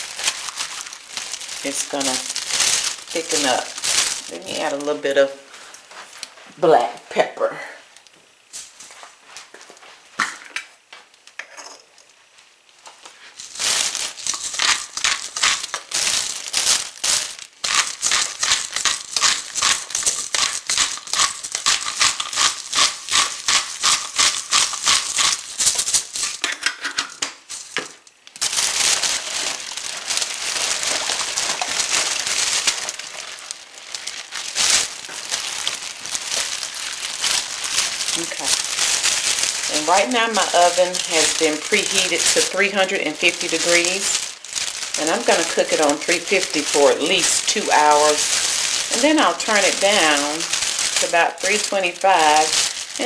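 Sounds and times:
pepper shaker rattling: 0:00.0 - 0:04.7, 0:13.4 - 0:26.5, 0:28.5 - 0:53.0
plastic bag crinkling: 0:00.0 - 0:07.3, 0:12.6 - 0:26.5, 0:27.4 - 0:53.0.

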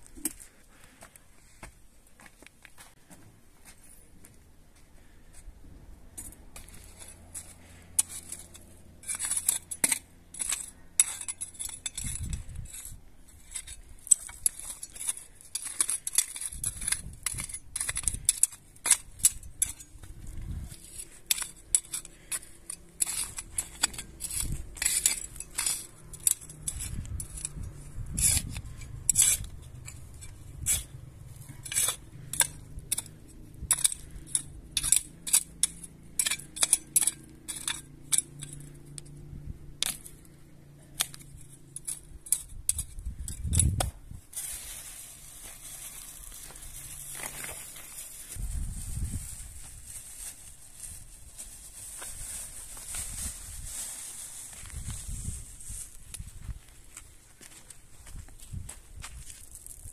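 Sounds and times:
metal spade scraping stony soil: 0:06.1 - 0:56.5.

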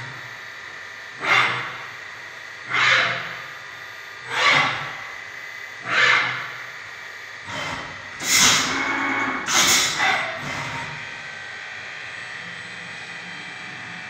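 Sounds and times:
machine hissing bursts: 0:07.4 - 0:11.0.

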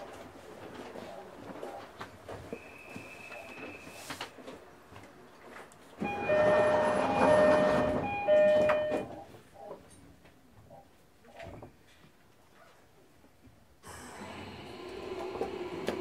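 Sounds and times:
train horn blasts: 0:06.0 - 0:09.1.

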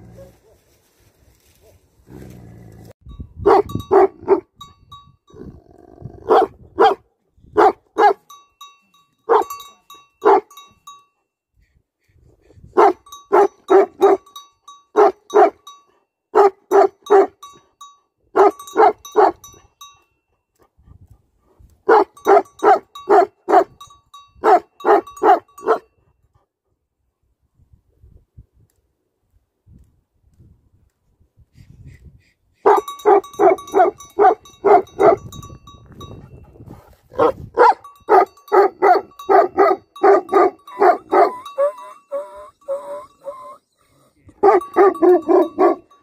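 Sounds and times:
dog barking: 0:03.5 - 0:04.5, 0:06.2 - 0:08.2, 0:09.3 - 0:09.6, 0:10.2 - 0:10.5, 0:12.8 - 0:14.3, 0:15.0 - 0:15.6, 0:16.4 - 0:17.4, 0:18.4 - 0:19.4, 0:21.9 - 0:23.7, 0:24.4 - 0:25.9, 0:32.7 - 0:35.3, 0:37.1 - 0:41.8, 0:44.4 - 0:45.8.

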